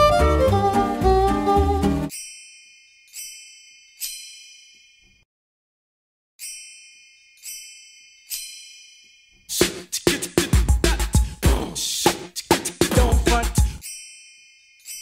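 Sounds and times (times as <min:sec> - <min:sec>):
bell-like chime dings: 0:02.1 - 0:05.2, 0:06.4 - 0:09.5, 0:13.6 - 0:15.0
hip hop beat: 0:09.5 - 0:13.8.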